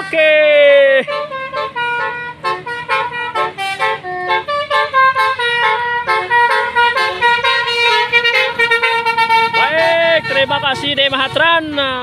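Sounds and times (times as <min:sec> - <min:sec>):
bus horn playing tune: 0:00.0 - 0:12.0.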